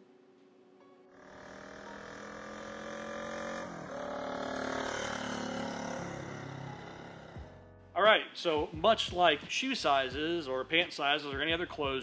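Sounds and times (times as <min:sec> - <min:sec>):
motorcycle engine running: 0:01.2 - 0:07.6.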